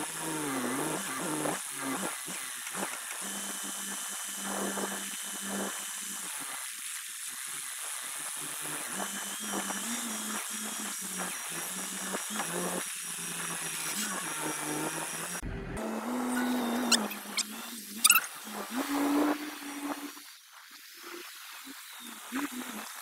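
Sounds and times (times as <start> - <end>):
forklift engine and hydraulic hum: 13.1 - 18.1.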